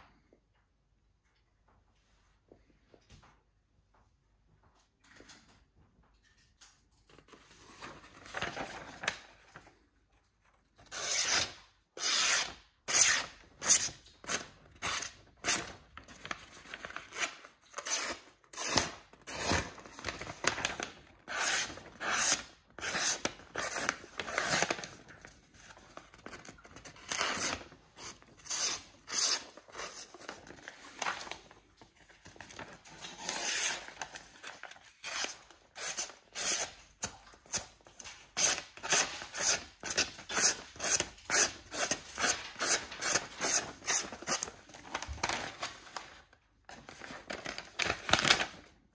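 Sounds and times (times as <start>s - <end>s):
paper rustling: 6.2s - 10.7s, 14.1s - 17.8s, 19.2s - 22.0s, 23.2s - 35.7s, 40.0s - 48.7s
knife cutting paper: 16.7s - 25.0s, 26.4s - 31.4s, 32.5s - 45.7s.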